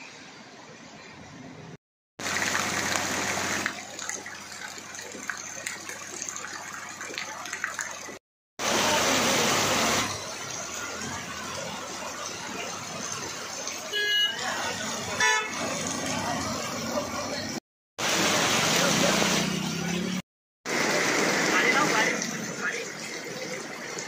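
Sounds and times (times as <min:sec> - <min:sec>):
heavy rain: 0:02.2 - 0:04.1, 0:08.6 - 0:20.0, 0:20.7 - 0:24.0
running floodwater: 0:02.2 - 0:24.0.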